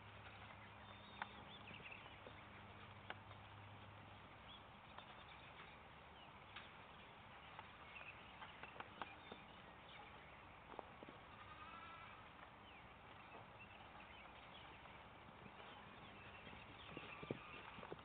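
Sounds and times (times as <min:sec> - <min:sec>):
faint outdoor ambience: 0:00.0 - 0:18.0
faint wavering bleat: 0:11.2 - 0:12.2.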